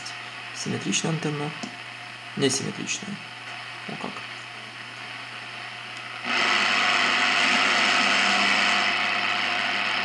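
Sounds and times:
radio static: 0:06.2 - 0:10.0.

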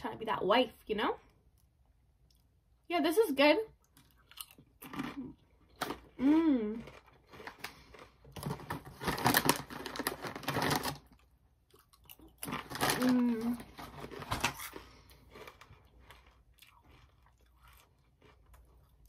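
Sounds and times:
chips crunching and chewing: 0:03.8 - 0:19.0
foil chip bag crinkling: 0:06.8 - 0:11.3, 0:12.2 - 0:18.6.

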